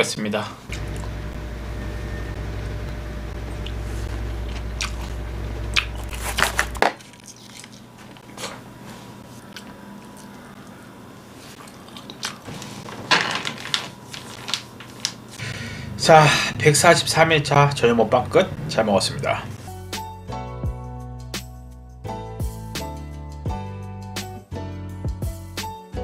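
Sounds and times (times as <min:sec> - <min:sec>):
low steady hum: 0:00.4 - 0:19.6
person chewing and biting: 0:03.5 - 0:08.7, 0:11.5 - 0:12.6.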